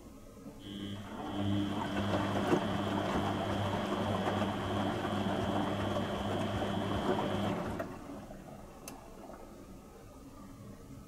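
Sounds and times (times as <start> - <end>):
washing machine motor hum: 0.6 - 9.4
water sloshing in drum: 0.7 - 9.6.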